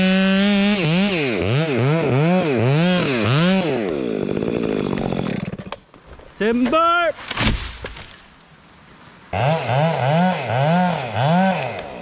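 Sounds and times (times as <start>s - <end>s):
chainsaw cutting wood: 0.0s - 5.9s, 9.3s - 12.0s.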